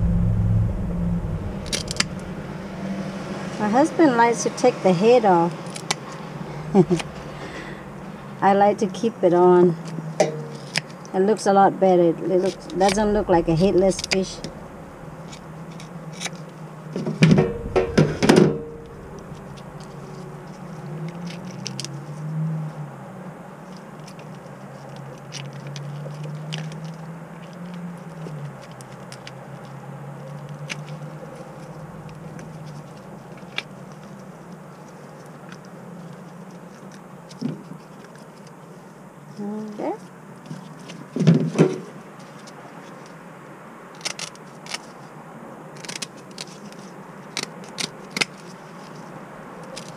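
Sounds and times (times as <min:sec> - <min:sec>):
low steady hum: 0:00.0 - 0:04.3, 0:06.1 - 0:09.6, 0:11.8 - 0:21.4, 0:31.2 - 0:33.3.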